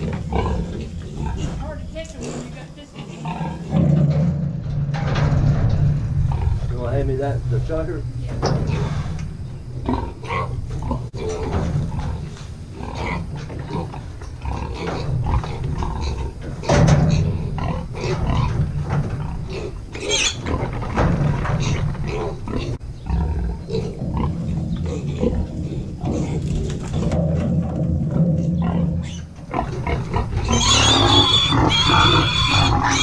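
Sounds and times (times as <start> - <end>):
piglets squealing and grunting: 0.0 - 3.9, 19.4 - 20.8, 28.6 - 33.0.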